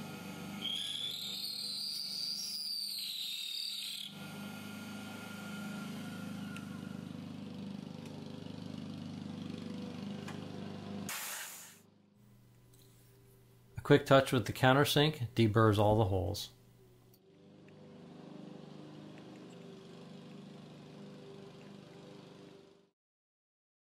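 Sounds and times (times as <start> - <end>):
end mill cutting metal whine: 0.0 - 8.3
spindle motor humming: 0.0 - 10.9, 17.3 - 22.8.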